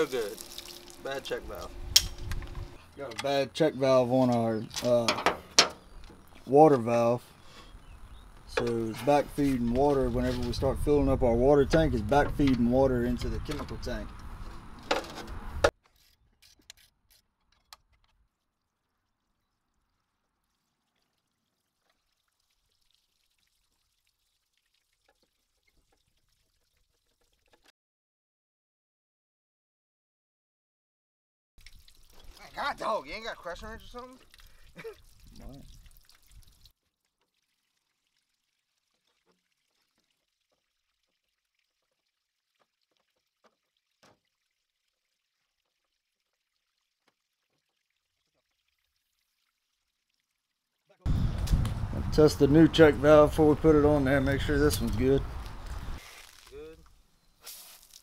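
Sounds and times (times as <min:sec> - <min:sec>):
water rushing out: 0:00.0 - 0:02.8
faint water trickle: 0:00.0 - 0:14.7, 0:18.1 - 0:27.7, 0:31.6 - 0:51.1.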